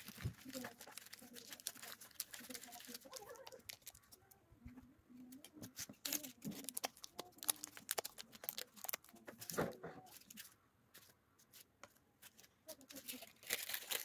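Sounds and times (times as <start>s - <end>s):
paper cups crinkling: 0.0s - 4.4s, 5.2s - 11.1s, 12.2s - 14.0s.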